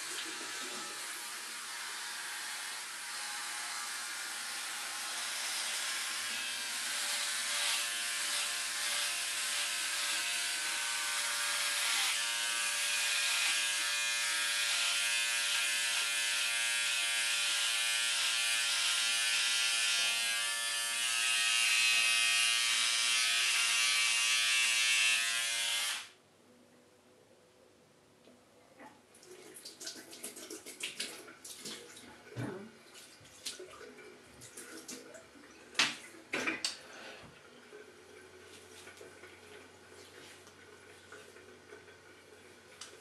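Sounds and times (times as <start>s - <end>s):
electric shaver buzzing: 0.0s - 26.2s.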